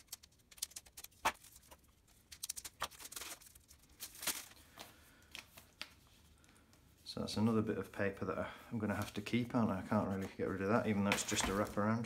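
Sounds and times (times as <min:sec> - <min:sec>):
plastic wrapping crinkling: 0:00.0 - 0:05.9.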